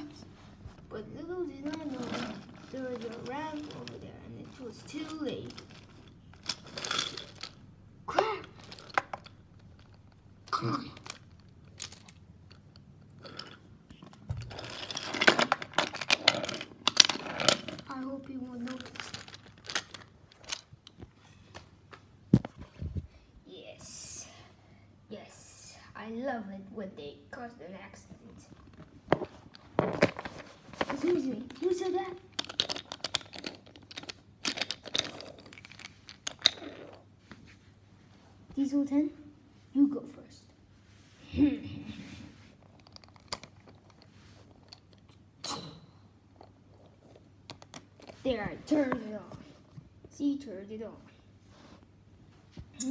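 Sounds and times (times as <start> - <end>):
wooden toy train cars clacking: 1.6 - 10.0, 13.3 - 20.6, 29.9 - 37.0.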